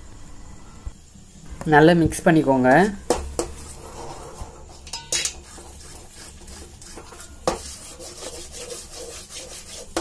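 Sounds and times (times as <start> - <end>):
wooden spatula scraping a steel pan: 3.4 - 10.0.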